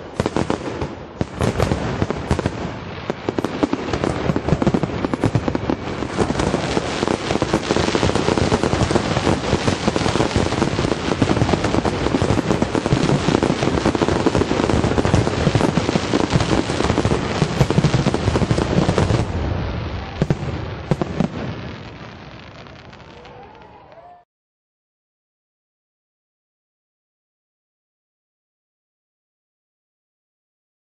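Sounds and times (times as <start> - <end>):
fireworks crackling: 0.0 - 24.2.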